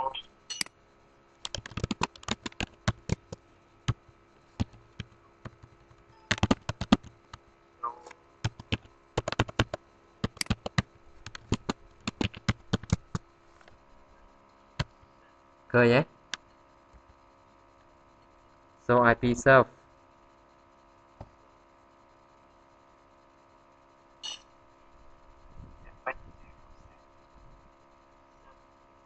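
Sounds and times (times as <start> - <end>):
computer keyboard keys clicking: 1.4 - 3.4, 4.6 - 7.1, 8.4 - 13.2.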